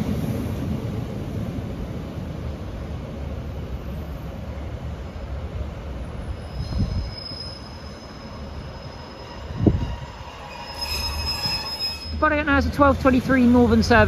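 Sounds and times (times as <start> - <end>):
thin high squeal: 6.4 - 12.3.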